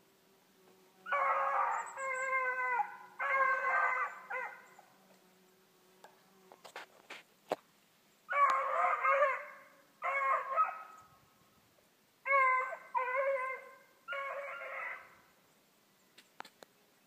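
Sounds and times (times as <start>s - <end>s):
hounds baying: 1.1s - 4.9s, 8.3s - 11.1s, 12.3s - 15.2s.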